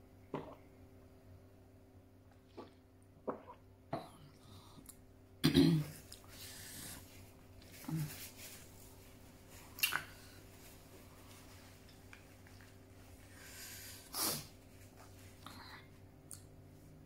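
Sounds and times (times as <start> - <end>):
loud nasal sniff: 13.3 - 14.6.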